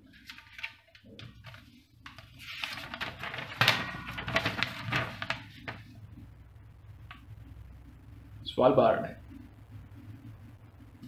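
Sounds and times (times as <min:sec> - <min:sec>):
paper crinkling: 0:00.0 - 0:06.0
paper rustling: 0:00.0 - 0:06.0.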